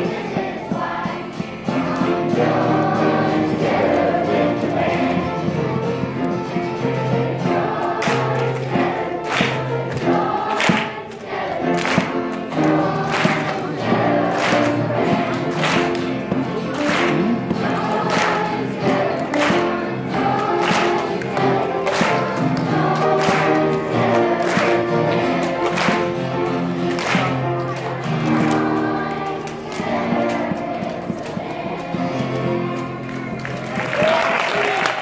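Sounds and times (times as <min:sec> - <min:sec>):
children's choir singing: 0:00.0 - 0:34.2
sharp hand claps: 0:08.0 - 0:17.5, 0:18.1 - 0:18.7, 0:19.3 - 0:19.8, 0:20.5 - 0:26.2, 0:26.9 - 0:28.6.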